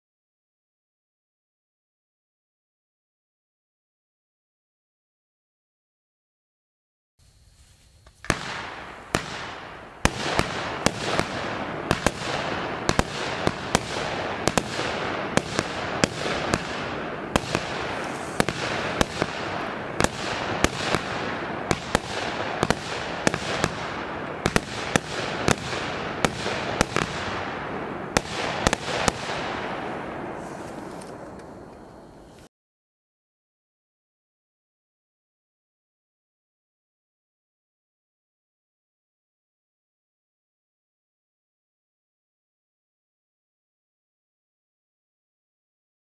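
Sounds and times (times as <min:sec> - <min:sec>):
fireworks hiss: 0:07.2 - 0:32.5
fireworks reports: 0:07.6 - 0:32.5.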